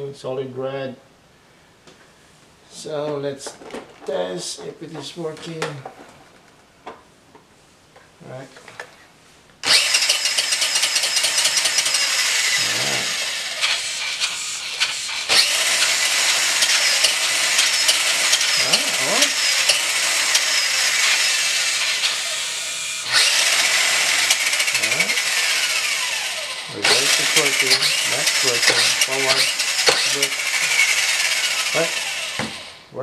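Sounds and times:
toy car motor and gears whirring: 9.6s - 32.9s.

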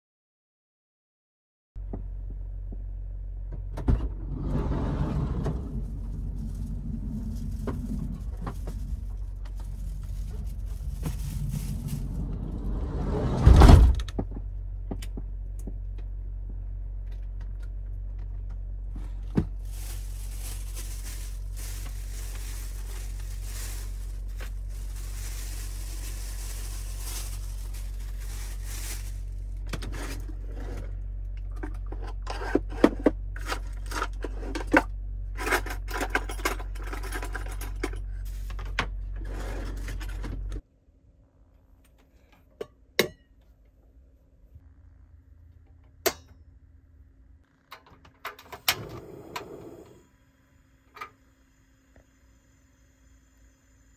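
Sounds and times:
steady low hum: 1.8s - 48.0s
food rustling: 5.6s - 12.7s, 19.4s - 30.3s.

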